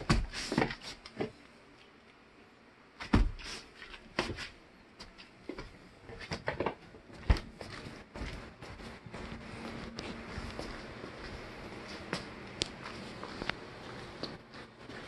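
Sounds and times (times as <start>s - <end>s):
kitten paws thumping on wooden floor: 5.0s - 10.9s.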